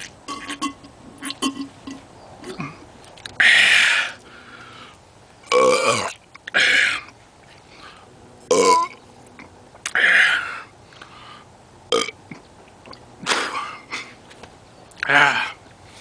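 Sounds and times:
man belching: 0:05.5 - 0:07.1, 0:08.5 - 0:09.0, 0:11.9 - 0:12.4.

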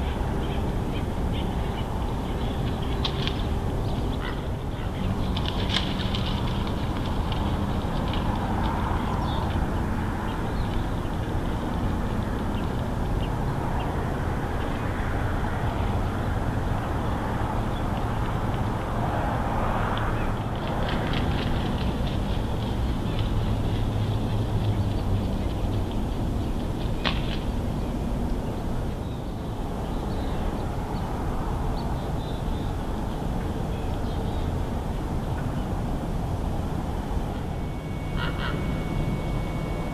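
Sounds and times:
low outdoor rumble: 0:00.0 - 0:39.9
faint high chirps: 0:37.3 - 0:39.9.

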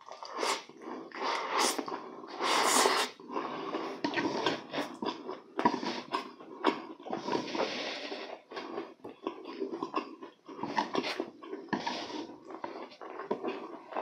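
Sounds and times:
slurping noodles: 0:00.0 - 0:14.0
breathing through the nose: 0:00.3 - 0:06.3, 0:07.1 - 0:09.0
wet chewing and lip smacks: 0:08.5 - 0:14.0.

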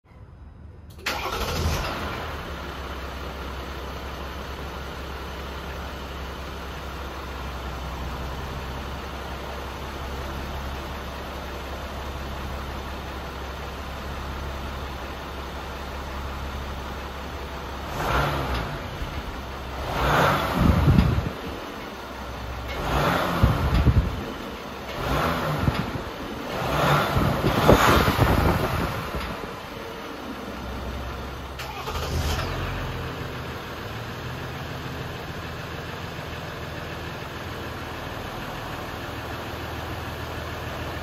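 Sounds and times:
diesel engine starting and idling: 0:00.1 - 0:41.0
engine revving: 0:17.8 - 0:21.6, 0:22.6 - 0:24.3, 0:24.9 - 0:30.2, 0:30.8 - 0:34.6.

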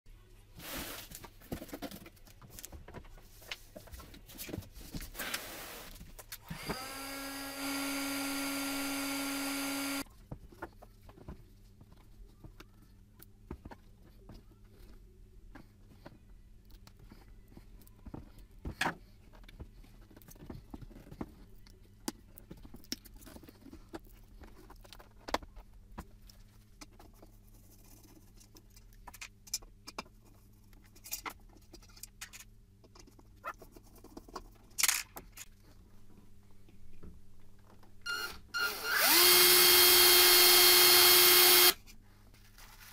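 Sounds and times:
heat gun fan whining: 0:06.4 - 0:10.0, 0:38.1 - 0:41.8.

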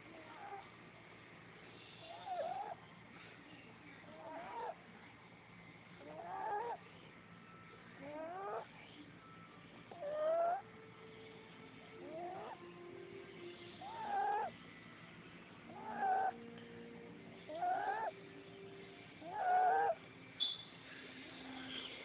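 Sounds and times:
puppy snoring squeakily: 0:02.0 - 0:02.8, 0:04.2 - 0:04.8, 0:06.0 - 0:06.8, 0:08.0 - 0:08.7, 0:09.9 - 0:10.6, 0:12.1 - 0:12.6, 0:13.7 - 0:14.5, 0:15.7 - 0:16.4, 0:17.4 - 0:18.1, 0:19.2 - 0:20.0.

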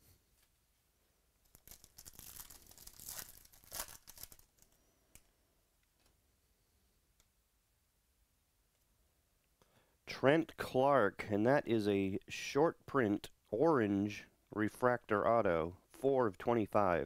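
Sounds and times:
wrapper tearing and crinkling: 0:01.4 - 0:04.7.

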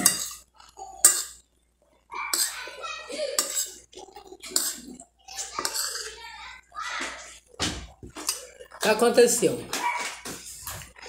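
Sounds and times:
metal spoon scraping glass bowl: 0:00.0 - 0:00.4, 0:03.4 - 0:03.8, 0:04.4 - 0:06.2
chewing: 0:03.4 - 0:06.2, 0:08.1 - 0:08.8.

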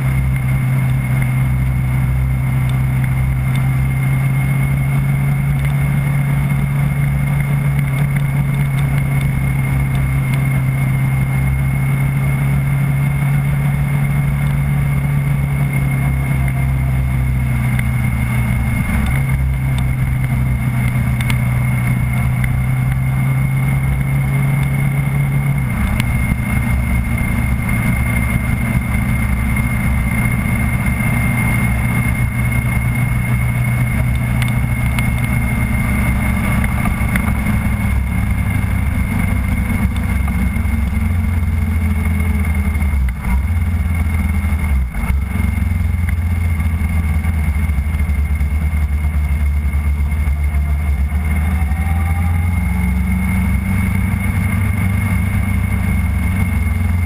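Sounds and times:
car engine at low revs: 0:00.0 - 0:57.0
road and wind noise: 0:00.0 - 0:57.0
steady high whine: 0:00.0 - 0:57.0.

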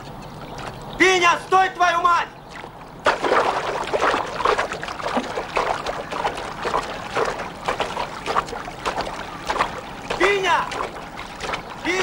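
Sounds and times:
swimming strokes splashing water: 0:02.4 - 0:12.0.

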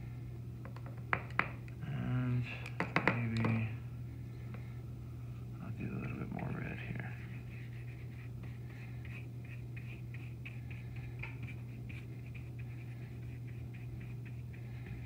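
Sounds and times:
steady low hum: 0:00.0 - 0:15.0
paintbrush strokes on canvas: 0:06.0 - 0:15.0.

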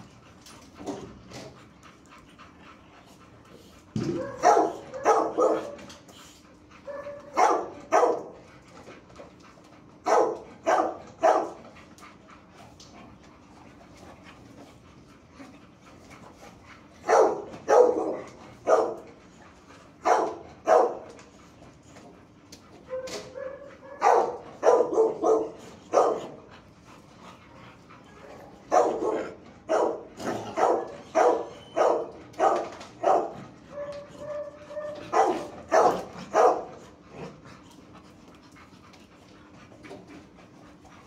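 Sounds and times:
dogs barking: 0:04.0 - 0:05.9, 0:06.8 - 0:08.5, 0:09.9 - 0:12.0, 0:16.9 - 0:21.4, 0:22.4 - 0:26.5, 0:28.1 - 0:37.0
dog whining: 0:30.4 - 0:32.2, 0:33.7 - 0:35.5.

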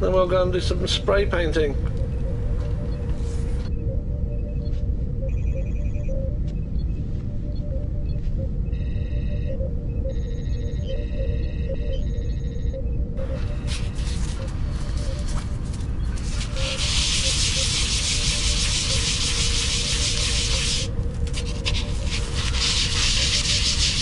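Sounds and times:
sanding on abrasive paper: 0:16.2 - 0:24.0.

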